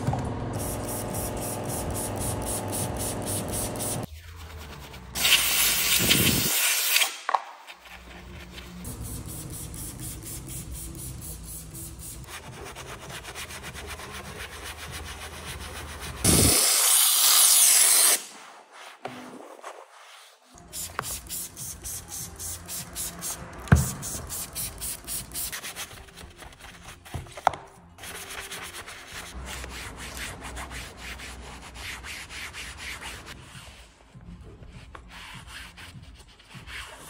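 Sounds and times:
spray cleaner hissing: 0:00.6 - 0:04.1
background music: 0:07.8 - 0:16.5, 0:20.6 - 0:37.0.

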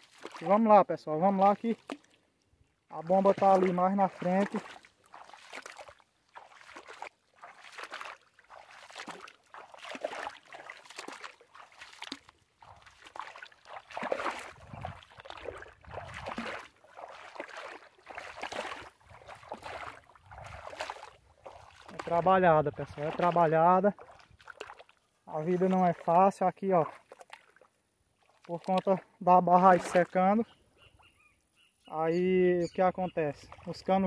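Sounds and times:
footsteps on mud: 0:00.0 - 0:02.2, 0:03.0 - 0:30.4.

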